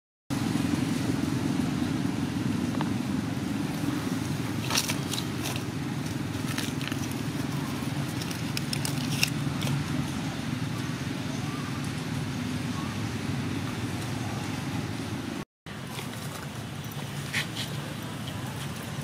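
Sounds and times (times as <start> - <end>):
vehicle engine rumble: 0.3 - 19.0.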